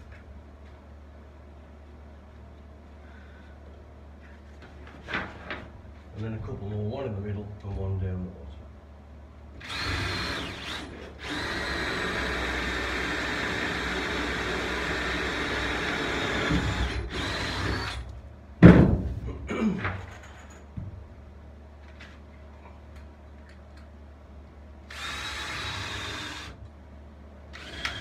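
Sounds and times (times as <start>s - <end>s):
cordless drill into wood: 9.6s - 18.1s, 24.9s - 26.6s, 27.6s - 28.0s
loud thump: 18.6s - 19.3s.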